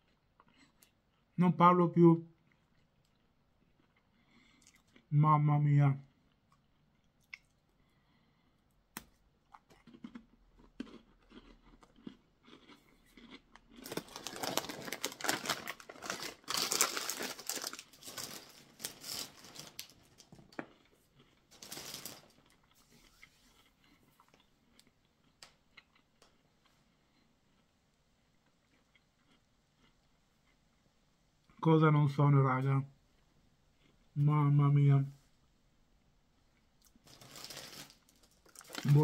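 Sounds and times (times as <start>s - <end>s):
crunching crisp snacks: 9.0s - 22.8s, 36.6s - 39.0s
plastic snack bag crinkling: 9.8s - 22.9s, 36.9s - 39.0s.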